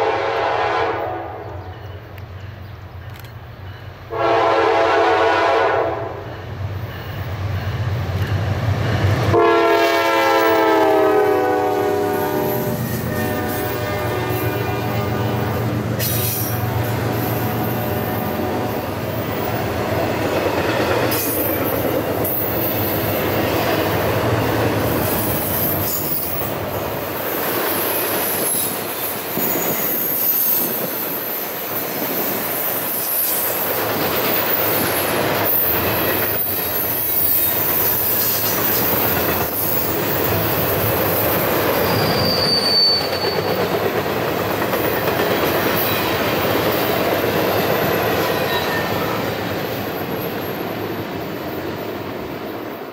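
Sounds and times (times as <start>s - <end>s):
train wheels rumbling on rails: 0.0s - 52.9s
wheel squeal: 36.3s - 39.9s, 41.8s - 43.7s.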